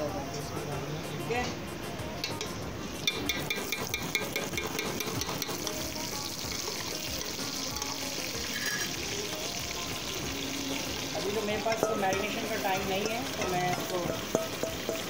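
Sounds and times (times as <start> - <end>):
oil sizzling in a pot: 3.0 - 15.0
metal spoon clinks: 8.5 - 9.0.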